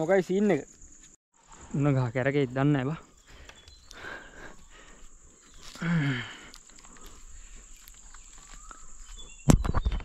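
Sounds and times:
insects droning: 0.0s - 9.7s.

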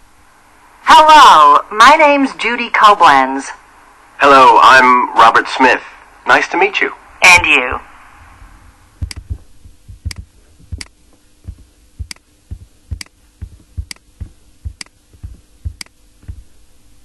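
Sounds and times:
computer mouse clicking: 9.0s - 9.3s, 10.0s - 10.9s.

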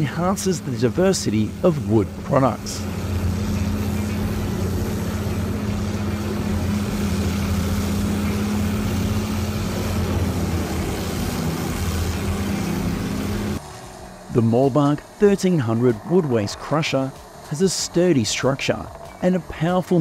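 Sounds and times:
broad machine working noise: 0.0s - 20.0s
wood grinder diesel engine drone: 0.0s - 20.0s.

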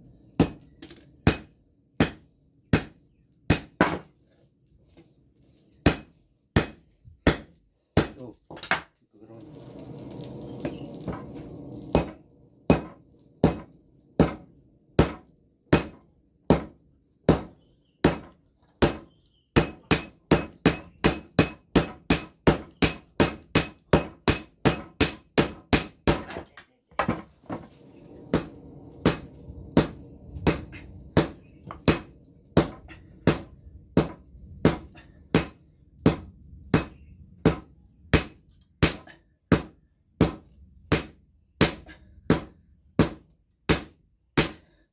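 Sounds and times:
hammer striking hot steel on anvil: 1.2s - 4.1s, 11.9s - 26.4s, 28.3s - 44.6s
low rumble: 9.2s - 14.9s, 27.6s - 38.0s.

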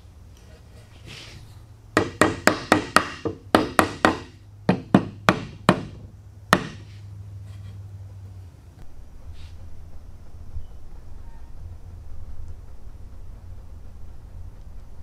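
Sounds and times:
wooden mallet knocking wood: 2.0s - 6.9s.

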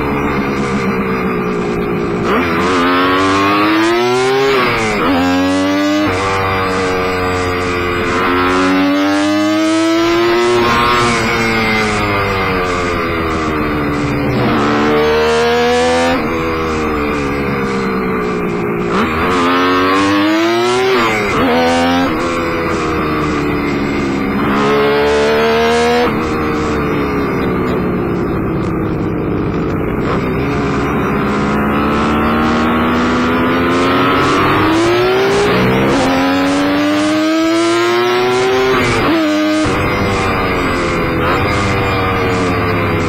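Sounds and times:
motorcycle engine revving: 0.0s - 43.0s.

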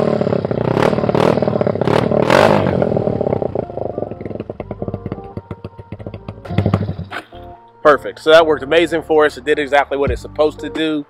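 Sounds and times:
atv engine revving: 0.0s - 7.4s.

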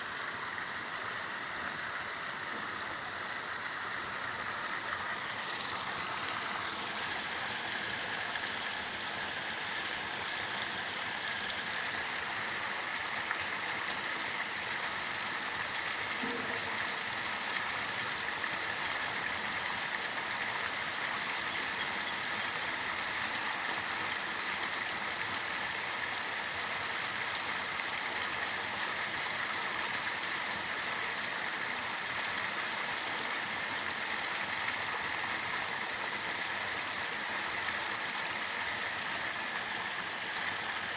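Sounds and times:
flowing water rushing: 0.0s - 40.9s.

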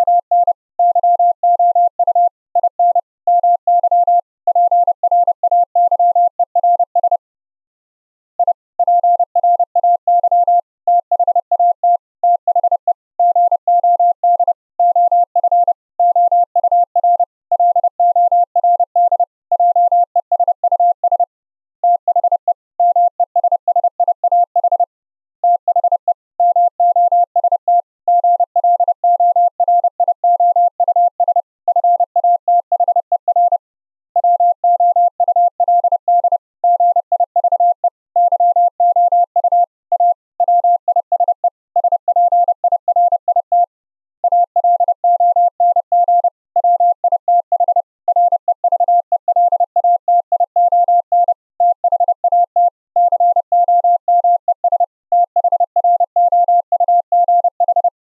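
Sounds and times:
morse code tone: 34.2s - 58.0s.

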